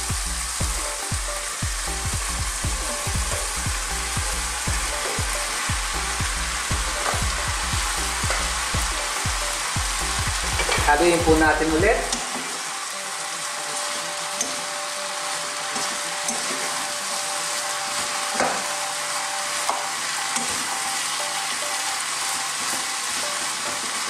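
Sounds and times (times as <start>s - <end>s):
food sizzling in a frying pan: 0.0s - 24.0s
metal spoon knocking pan: 10.5s - 10.9s.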